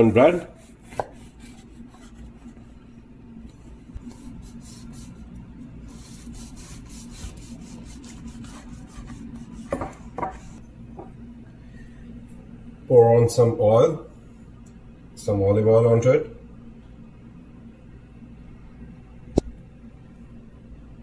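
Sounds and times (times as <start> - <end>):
knife sawing through bread crust: 0.4 - 2.6, 5.9 - 9.8
knocks on cutting board: 9.7 - 10.4.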